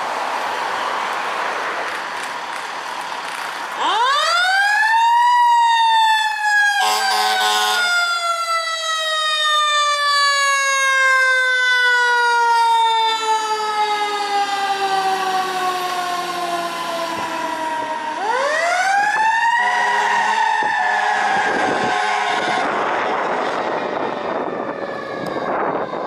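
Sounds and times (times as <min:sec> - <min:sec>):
mechanical siren wail: 0:03.8 - 0:26.0
fire engine horn blast: 0:06.7 - 0:08.2, 0:19.4 - 0:23.9.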